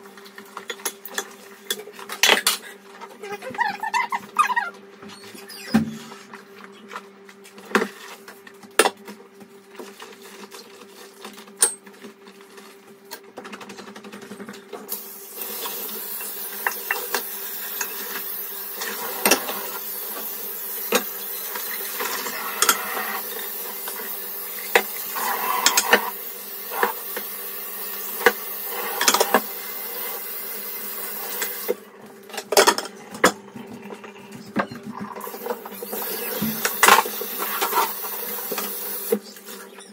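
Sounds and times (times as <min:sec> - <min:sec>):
tap water running: 0:14.9 - 0:31.8, 0:33.2 - 0:39.6.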